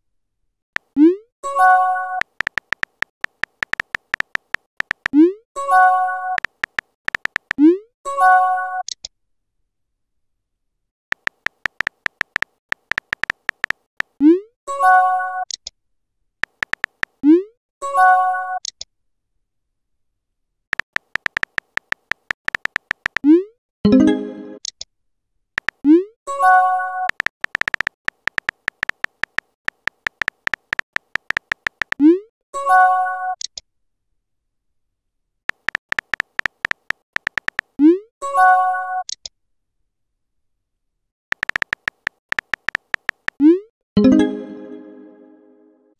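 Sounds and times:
keyboard key clicks: 2.2s - 5.2s, 6.4s - 7.6s, 11.1s - 14.1s, 16.4s - 17.2s, 20.8s - 23.3s, 25.6s - 25.8s, 27.1s - 32.0s, 35.5s - 37.8s, 41.3s - 43.4s
chiming message tone: 44.0s - 45.9s.

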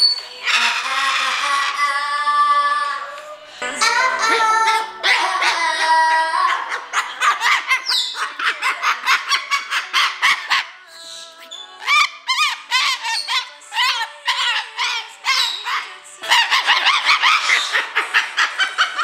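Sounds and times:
cockatoo squawking: 0.3s - 2.4s, 3.8s - 19.0s
song playing: 3.4s - 5.7s.

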